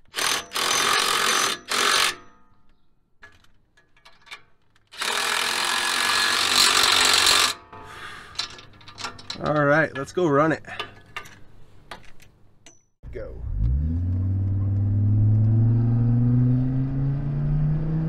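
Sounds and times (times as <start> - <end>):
impact driver hammering nuts: 0.1 - 2.4.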